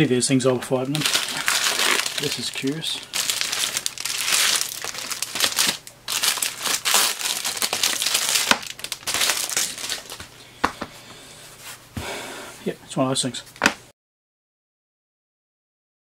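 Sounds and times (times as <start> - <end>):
plastic bag crinkling: 0.8 - 10.3.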